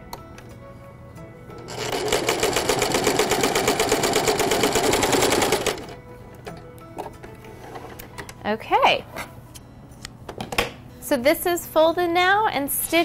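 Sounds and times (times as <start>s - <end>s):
sewing machine stitching: 1.7s - 6.0s.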